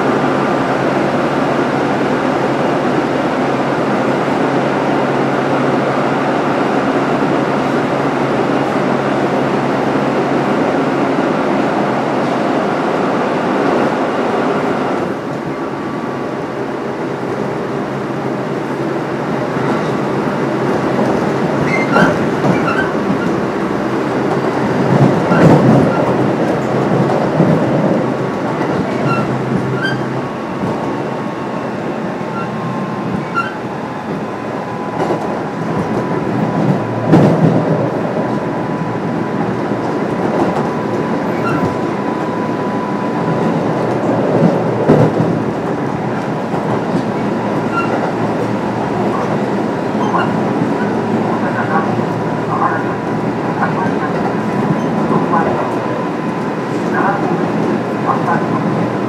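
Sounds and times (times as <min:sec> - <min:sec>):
train wheels rumbling on rail: 0:00.0 - 0:59.0
track knocks: 0:24.2 - 0:31.0, 0:34.9 - 0:38.5.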